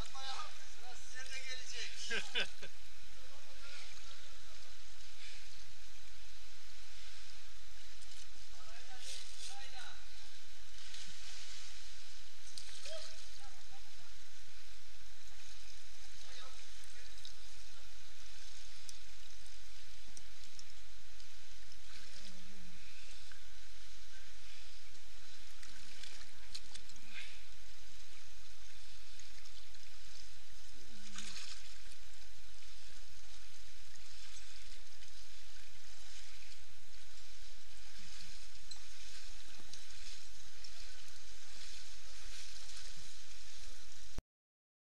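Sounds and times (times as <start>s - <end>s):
water splashing from wading: 25.3s - 43.9s.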